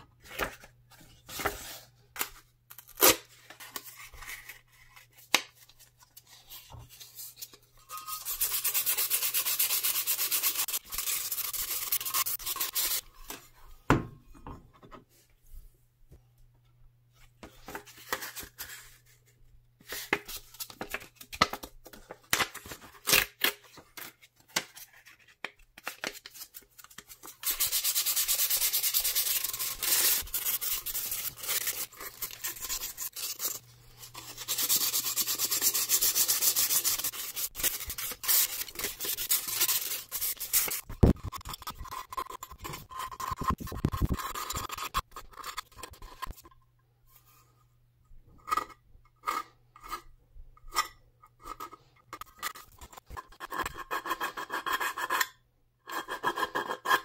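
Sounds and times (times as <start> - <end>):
sandpaper rubbing on sheet metal: 8.1 - 13.0, 27.4 - 33.6, 34.2 - 40.9.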